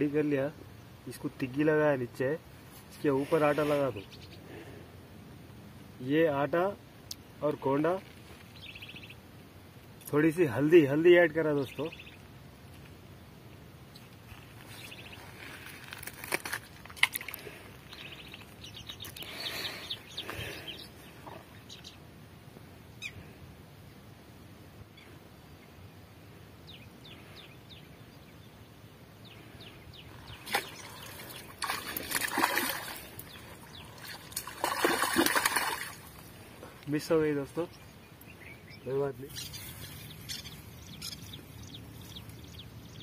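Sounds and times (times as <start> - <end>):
faint bird chirps: 3.6 - 4.5, 36.7 - 43.0
water splashing and sloshing: 30.1 - 36.8.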